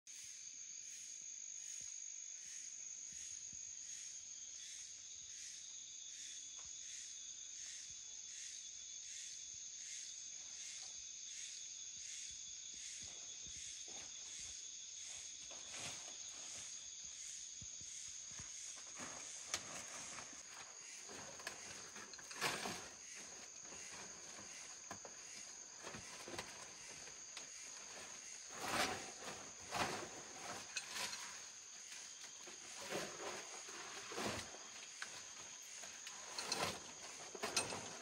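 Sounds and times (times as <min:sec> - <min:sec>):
insects trilling: 0:00.1 - 0:38.0
footsteps through undergrowth: 0:14.0 - 0:17.2, 0:18.3 - 0:38.0.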